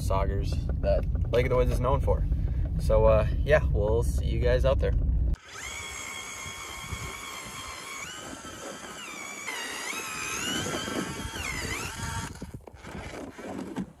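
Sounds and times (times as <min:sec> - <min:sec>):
ice auger motor whining: 0:05.4 - 0:13.9.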